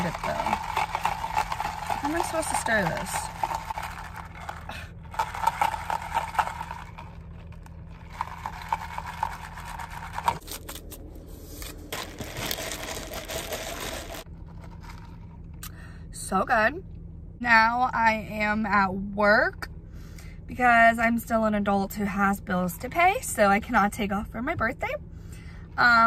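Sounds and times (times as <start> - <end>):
ice cubes rattling in plastic cup: 0.0 - 10.9, 11.9 - 15.3.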